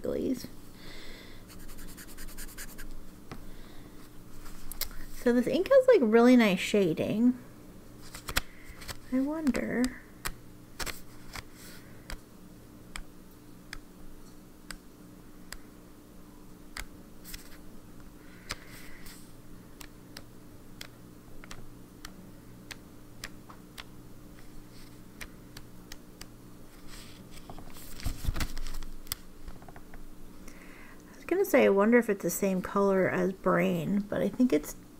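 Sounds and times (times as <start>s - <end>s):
low steady hum: 0.0s - 34.9s
notebook pages flipping: 8.0s - 9.2s, 10.8s - 12.2s, 17.2s - 17.6s, 26.7s - 29.2s
paper rustling: 8.0s - 9.2s, 26.7s - 28.9s.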